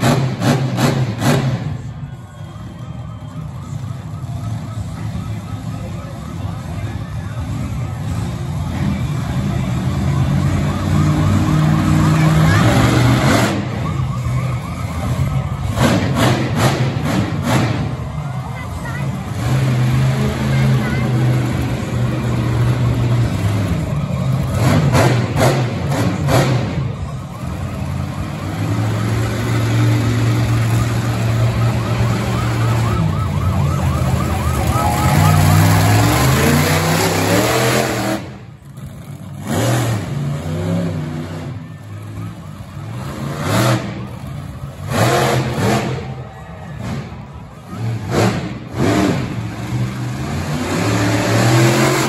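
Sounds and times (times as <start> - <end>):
truck engine revving: 0.0 - 52.0
warbling siren wail: 10.5 - 15.7, 30.4 - 37.3.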